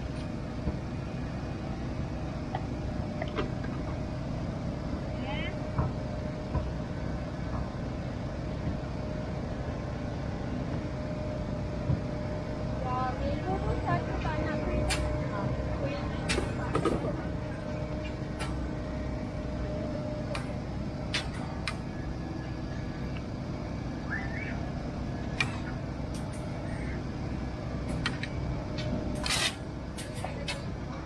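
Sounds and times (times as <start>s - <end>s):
low engine drone: 0.0s - 31.0s.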